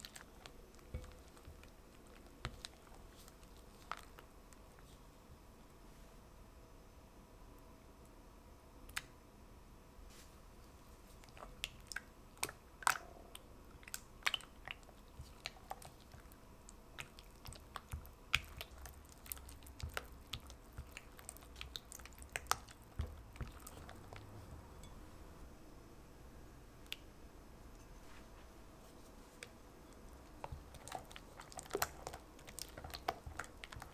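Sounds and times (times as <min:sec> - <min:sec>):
sticky wet batter sounds: 0:00.0 - 0:05.1, 0:10.7 - 0:24.9, 0:28.8 - 0:33.9.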